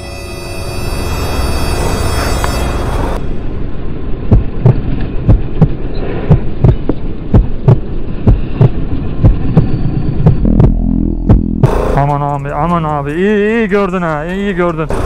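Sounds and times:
steady low hum: 3.2 - 15.0
heartbeat thumps: 4.3 - 13.2.

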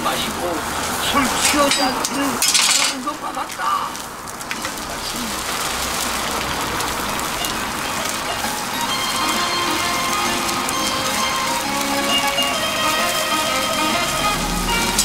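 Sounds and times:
egg sizzling on a griddle: 0.0 - 15.0.

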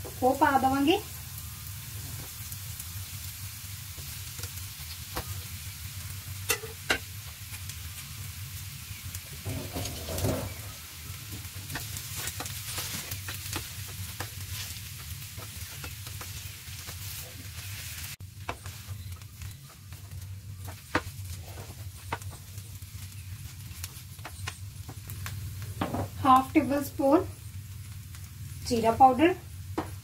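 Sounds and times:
light sizzle in pan: 0.0 - 30.0
spatula scraping and tapping pan: 11.7 - 17.2, 18.4 - 22.5.

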